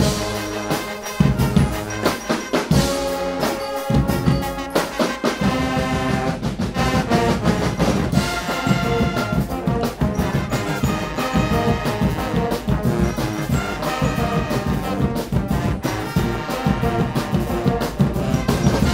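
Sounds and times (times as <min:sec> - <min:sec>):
brass band playing: 0:00.0 - 0:18.9
drums and cymbals beat: 0:00.0 - 0:18.9.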